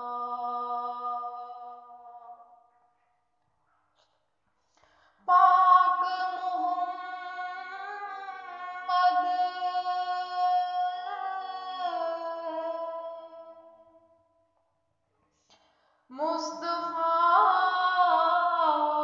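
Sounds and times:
woman singing long notes: 5.3 - 13.7.

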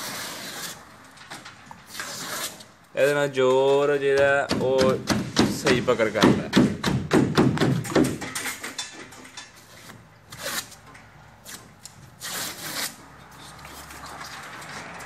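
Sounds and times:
scraping gypsum board paper: 0.0 - 0.9, 1.9 - 3.4, 9.7 - 15.0.

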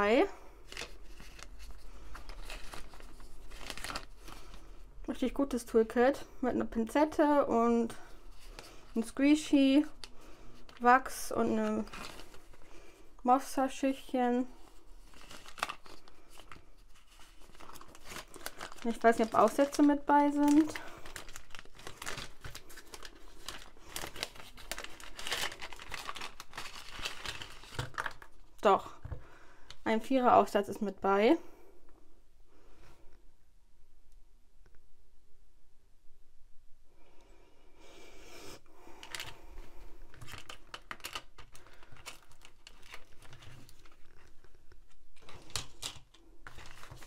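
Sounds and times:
plastic packaging crinkling: 0.6 - 4.7, 8.1 - 12.8, 14.8 - 28.6, 39.0 - 47.0.

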